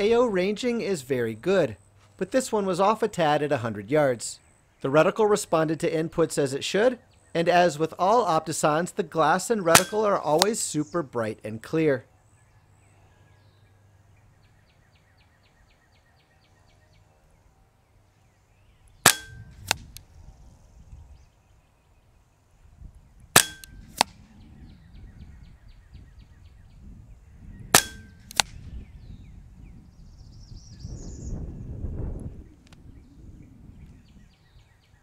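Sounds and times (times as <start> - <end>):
air rifle shots: 9.7 - 10.5, 19.0 - 19.9, 23.3 - 24.2, 27.7 - 28.6
faint click: 32.6 - 32.8.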